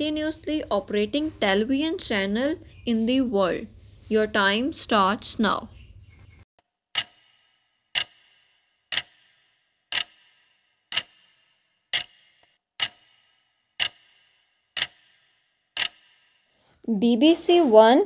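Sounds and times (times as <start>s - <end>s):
clock ticking with ringing tail: 6.9s - 16.6s.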